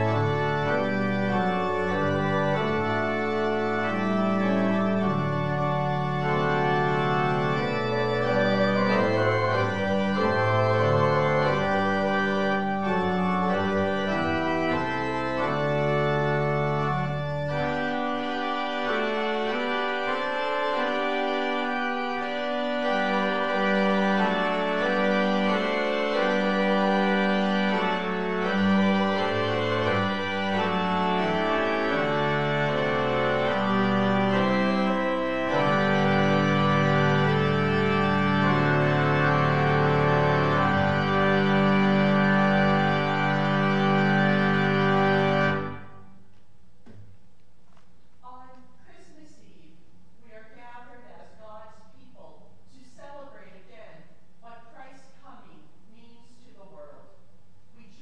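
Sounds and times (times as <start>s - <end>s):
church organ chords: 0.0s - 46.3s.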